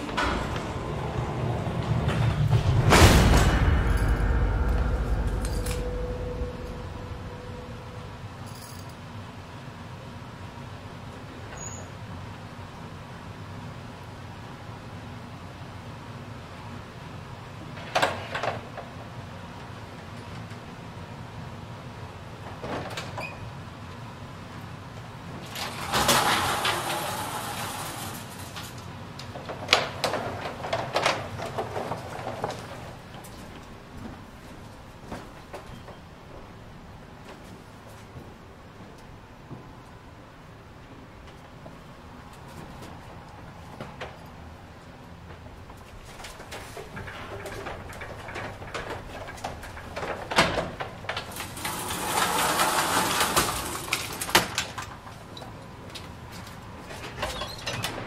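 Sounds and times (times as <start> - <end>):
steel gate rattling: 0.0 - 8.9, 25.5 - 28.8, 46.5 - 54.8
wooden gate being lifted: 25.4 - 28.7, 46.2 - 55.0.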